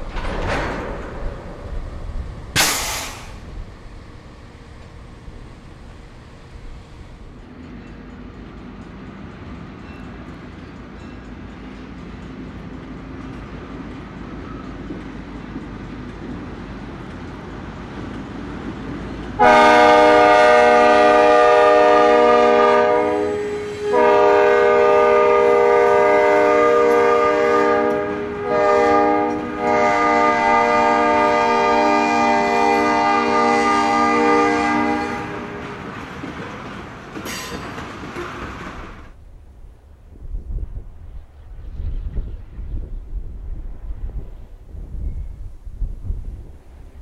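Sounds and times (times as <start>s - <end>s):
diesel train rumbling: 0.0s - 47.0s
locomotive air horn blasts: 19.4s - 35.9s.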